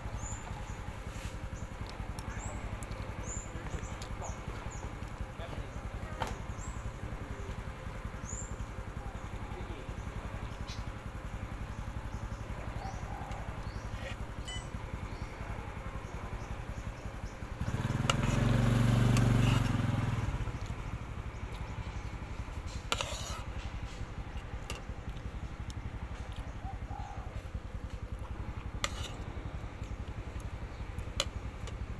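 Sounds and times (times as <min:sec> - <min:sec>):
motor vehicle passing: 0:11.1 - 0:31.9.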